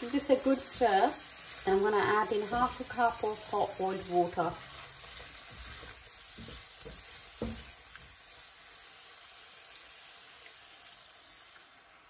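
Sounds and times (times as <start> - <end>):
prawns sizzling in a frying pan: 0.0 - 12.0
spatula knocking a pan: 5.1 - 8.2.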